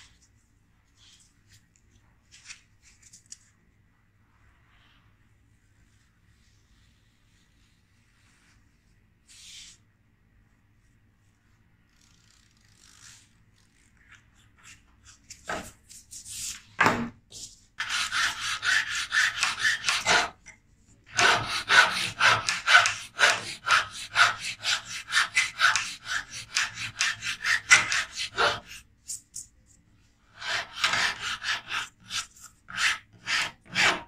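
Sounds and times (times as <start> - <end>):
hand file rasping: 17.8 - 20.4, 21.1 - 28.7, 30.4 - 34.0.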